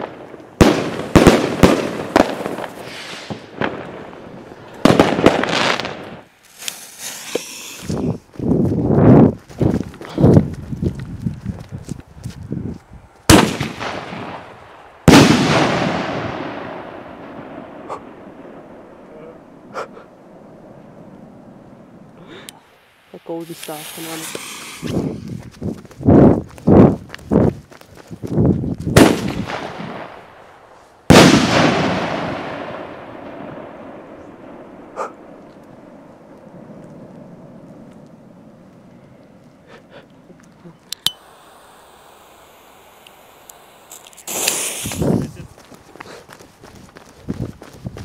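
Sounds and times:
firework bangs: 0:00.0 - 0:08.1, 0:13.3 - 0:19.0, 0:23.4 - 0:25.3, 0:28.9 - 0:30.4, 0:31.1 - 0:38.0, 0:41.2 - 0:45.4
firework bang: 0:13.3 - 0:14.5, 0:15.1 - 0:17.9, 0:29.0 - 0:30.2, 0:31.1 - 0:34.0, 0:44.0 - 0:45.2.

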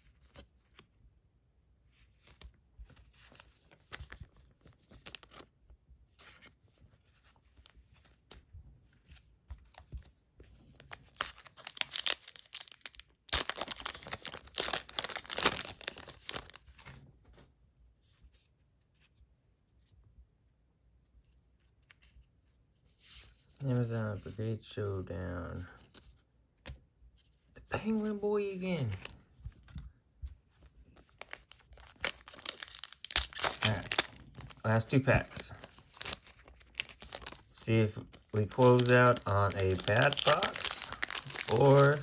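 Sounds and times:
foil wrapper tearing and crinkling: 0:10.8 - 0:16.6, 0:31.1 - 0:42.0.

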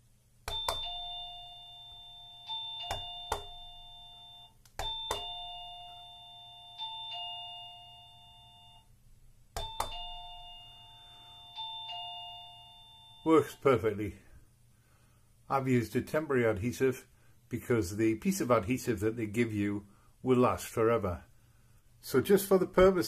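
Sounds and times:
doorbell ding-dong chime: 0:00.5 - 0:08.9, 0:09.6 - 0:13.4.

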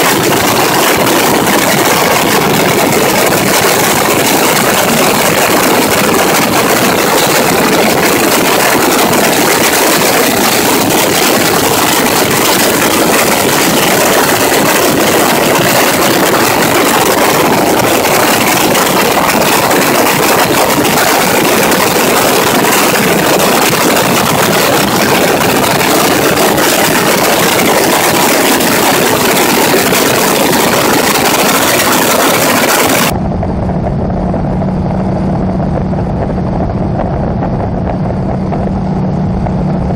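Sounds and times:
aircraft radial engine: 0:00.0 - 0:39.9
engine drone inside cockpit: 0:00.0 - 0:39.9
rush of air: 0:00.0 - 0:39.9.

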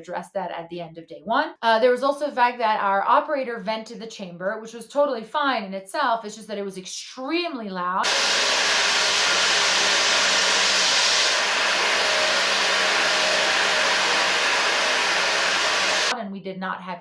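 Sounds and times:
loud rush of venting air: 0:08.0 - 0:16.1.

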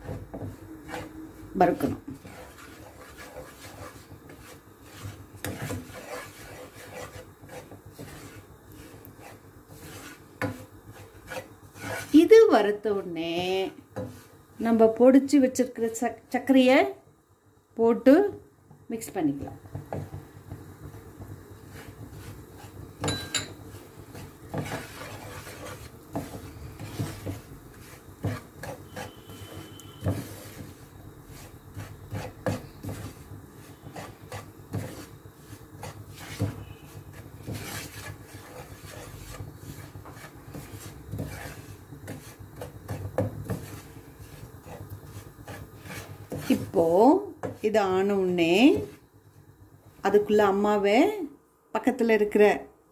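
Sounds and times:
spatula scraping dry mix in pan: 0:00.0 - 0:16.1, 0:19.0 - 0:50.4.

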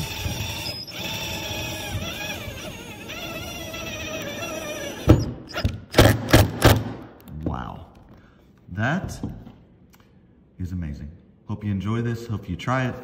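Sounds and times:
cordless drill motor whine: 0:00.0 - 0:05.3.

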